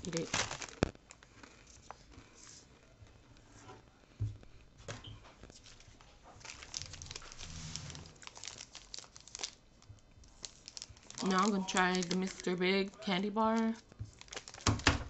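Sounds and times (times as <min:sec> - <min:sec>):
snack wrapper crinkling: 0:00.0 - 0:02.3, 0:06.4 - 0:15.0
chewing potato chip: 0:06.5 - 0:09.6.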